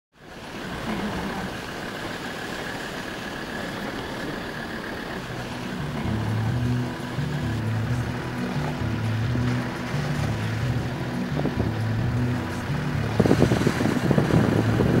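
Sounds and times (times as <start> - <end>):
vehicle engine and road noise: 0.2 - 15.0
low music notes: 5.2 - 15.0.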